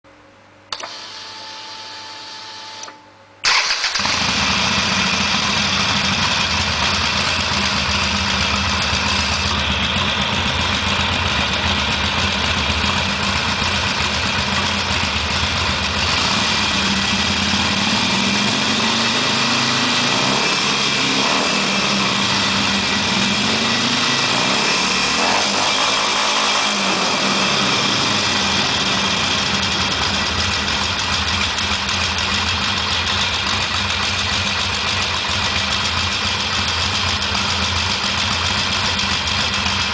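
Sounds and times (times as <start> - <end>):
starter whine: 0.7 - 39.9
motorcycle engine idling: 3.5 - 20.0, 27.2 - 39.9.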